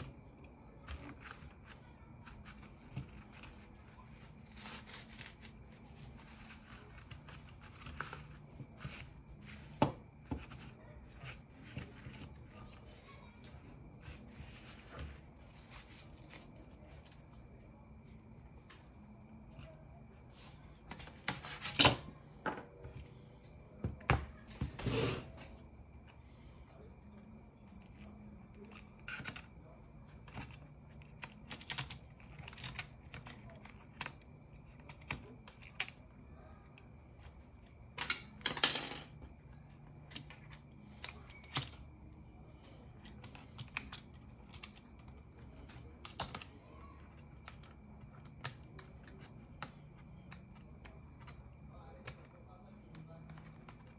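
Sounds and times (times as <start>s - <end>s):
tools scraping on a bench: 24.6s - 25.5s
tools and parts clicking and knocking: 38.0s - 39.1s.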